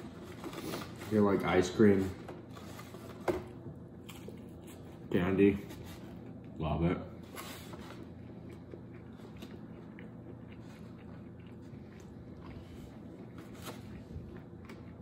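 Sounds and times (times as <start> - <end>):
person chewing food: 7.9 - 15.0.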